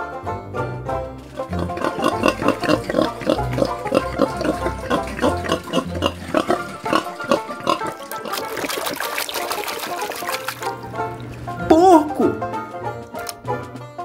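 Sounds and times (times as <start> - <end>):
pig grunting: 1.3 - 9.0.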